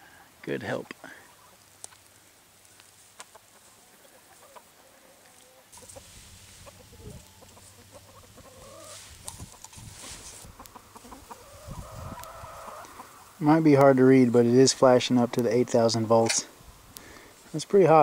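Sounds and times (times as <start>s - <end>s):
chickens clucking: 0.2s - 2.1s, 3.0s - 16.5s
rustling: 5.2s - 13.4s.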